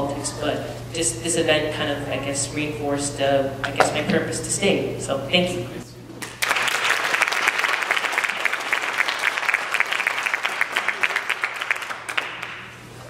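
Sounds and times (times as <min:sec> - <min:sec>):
audience applauding: 0:06.2 - 0:12.8.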